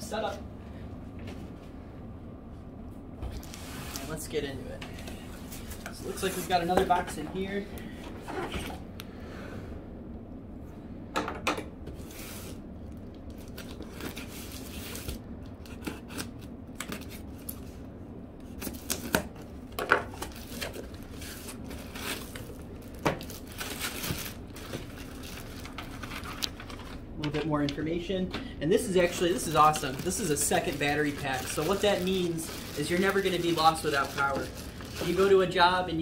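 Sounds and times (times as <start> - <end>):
knife slitting packing tape: 15.6 - 17.2
plastic wrap rustling: 20.1 - 27.1, 28.8 - 35.8.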